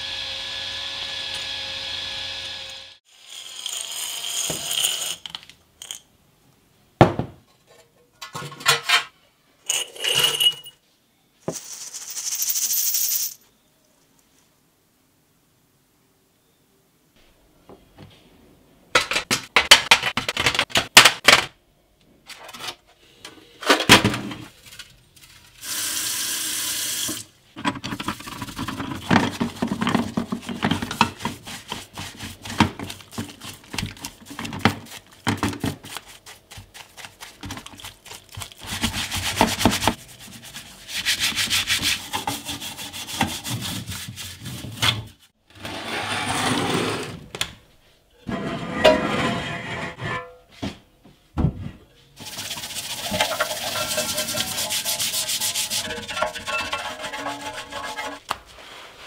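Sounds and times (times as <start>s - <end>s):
scrubbing metal in soapy water: 28.0s - 44.8s, 52.2s - 59.0s.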